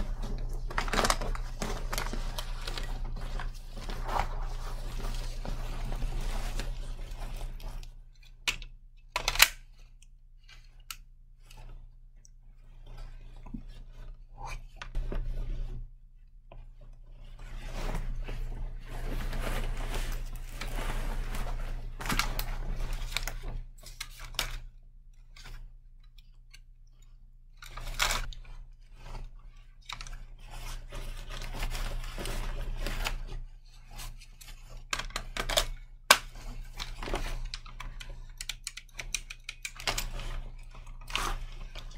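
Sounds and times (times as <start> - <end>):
clothing and gear rustling: 0.0 - 8.0, 17.2 - 23.7.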